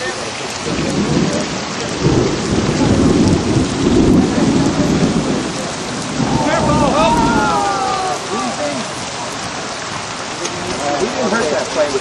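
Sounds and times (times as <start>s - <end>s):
heavy rain pouring: 0.0s - 12.0s
thunder rumbling: 0.6s - 8.4s.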